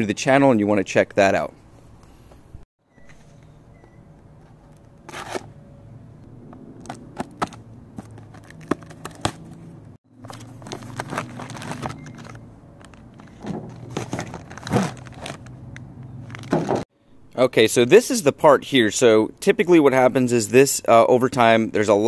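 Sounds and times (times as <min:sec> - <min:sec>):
plastic bag crinkling: 0:10.2 - 0:15.5.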